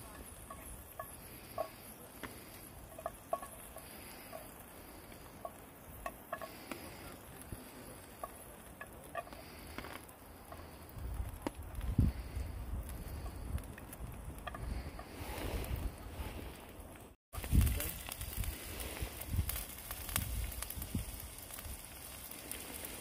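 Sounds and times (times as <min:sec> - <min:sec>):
wind rumble on microphone: 0:10.8 - 0:16.6, 0:17.4 - 0:22.1.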